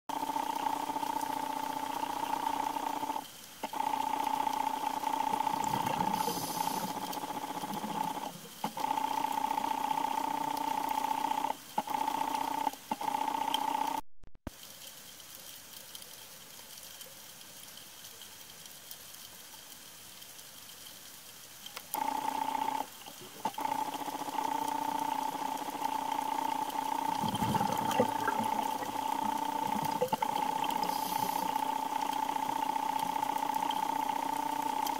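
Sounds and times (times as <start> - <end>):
underwater mechanical hum: 0.1 - 34.9
faint water hiss: 2.4 - 8.7, 14.5 - 34.9.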